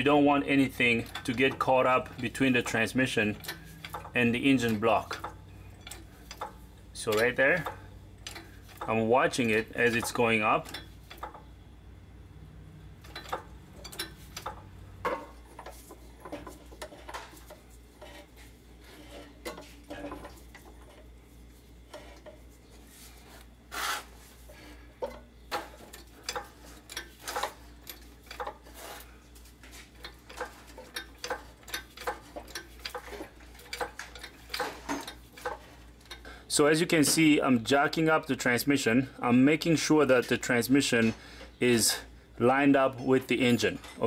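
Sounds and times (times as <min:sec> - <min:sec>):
low steady hum: 0:00.0 - 0:44.0
metallic clicks and knocks: 0:00.8 - 0:11.5, 0:13.0 - 0:18.2, 0:25.0 - 0:28.7, 0:30.0 - 0:36.2
metal scrape: 0:15.1 - 0:21.0, 0:21.9 - 0:24.8, 0:28.4 - 0:30.6.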